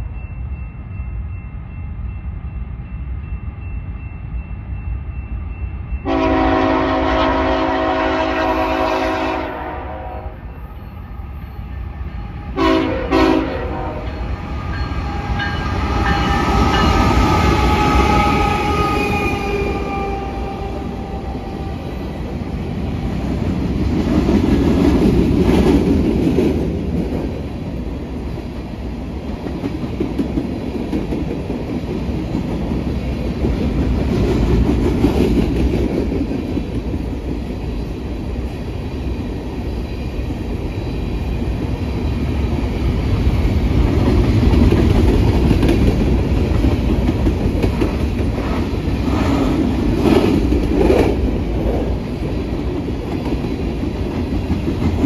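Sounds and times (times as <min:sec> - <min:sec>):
diesel locomotive engines: 0:00.0 - 0:55.0
train horn: 0:06.0 - 0:10.6, 0:12.5 - 0:14.3, 0:15.1 - 0:22.2
train wheels rumbling and clattering: 0:10.6 - 0:55.0.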